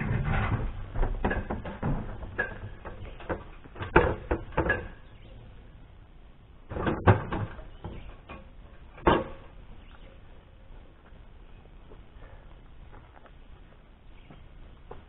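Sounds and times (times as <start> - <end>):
aluminium ladder knocking and clanking: 0.0 - 5.2, 6.7 - 9.6.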